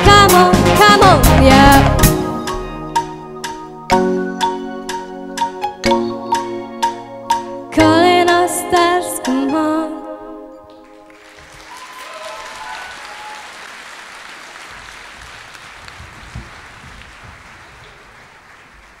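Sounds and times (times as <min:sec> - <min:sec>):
audience applauding: 0:10.9 - 0:19.0.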